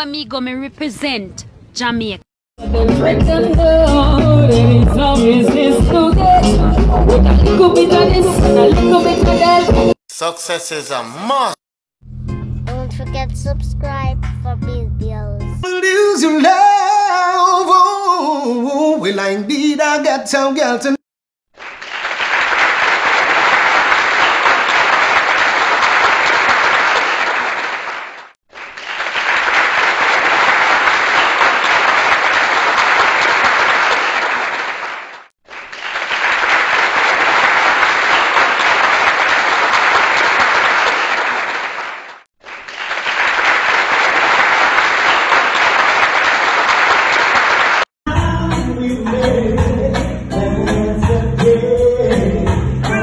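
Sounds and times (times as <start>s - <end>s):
music: 2.6s - 10.0s, 12.0s - 16.6s, 48.1s - 53.0s
crowd applause: 21.6s - 47.9s.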